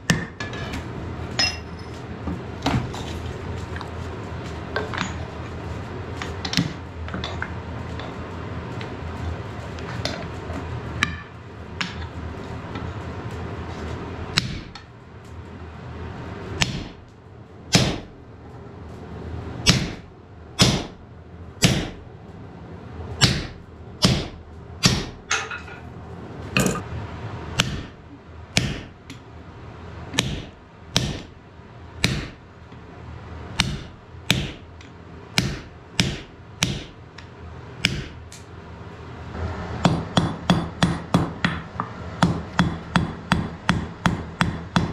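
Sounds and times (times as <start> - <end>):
hammer striking metal: 1.4 - 1.9, 39.8 - 44.9.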